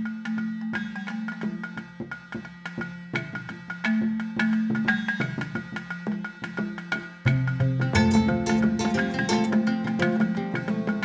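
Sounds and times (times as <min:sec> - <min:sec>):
mallet percussion notes: 0:03.3 - 0:11.0.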